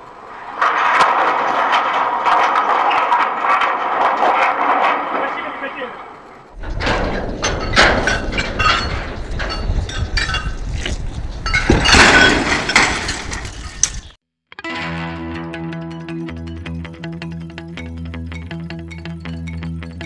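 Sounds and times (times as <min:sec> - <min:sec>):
metal clanks and crashes: 0:00.0 - 0:14.2.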